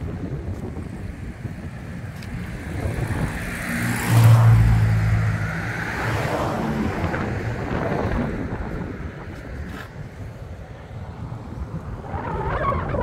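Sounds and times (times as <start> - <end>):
wind on microphone: 0.0 - 13.0
vehicle passing by: 1.9 - 10.3.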